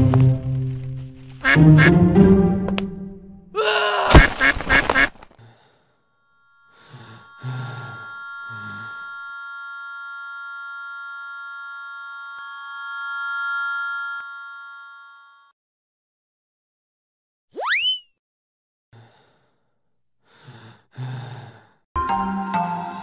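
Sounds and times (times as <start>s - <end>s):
cartoon duck quack: 1.4s - 2.0s
shimmering music chord: 6.4s - 14.7s.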